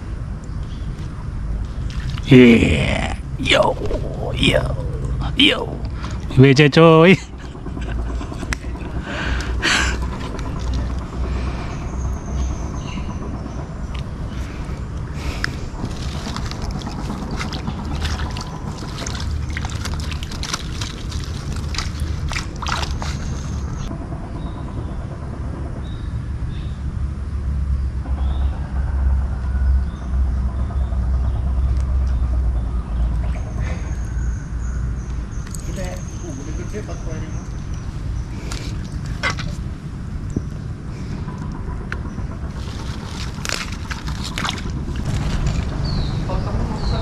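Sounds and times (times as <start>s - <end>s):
low rumble: 0.0s - 47.0s
wind buffeting microphone: 35.2s - 47.0s
hands handling fishing line: 42.6s - 44.8s.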